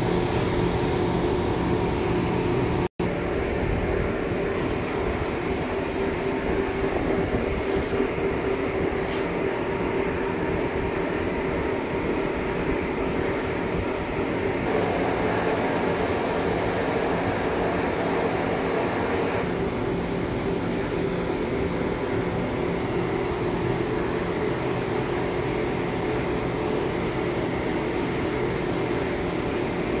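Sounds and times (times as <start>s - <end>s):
lathe machine hum: 0.0s - 2.9s, 14.6s - 21.1s
faint high whine: 14.6s - 19.5s.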